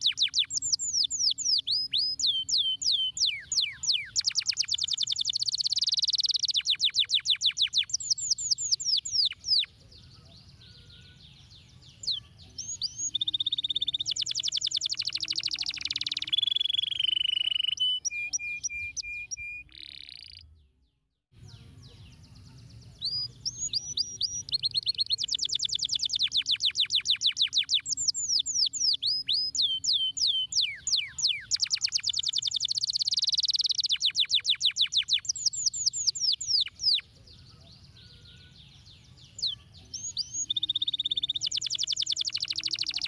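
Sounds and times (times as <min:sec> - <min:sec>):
canary singing trills: 0:00.0 - 0:20.6, 0:21.4 - 0:43.0.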